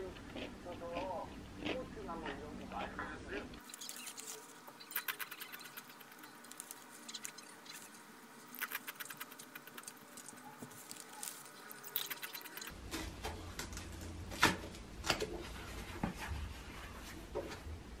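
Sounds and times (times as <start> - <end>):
chips crunching while chewed: 3.6 - 12.7.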